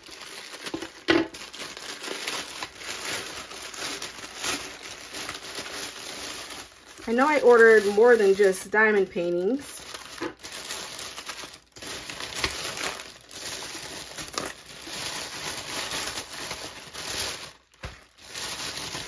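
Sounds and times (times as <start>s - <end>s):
plastic packaging crinkling: 0.0s - 19.0s.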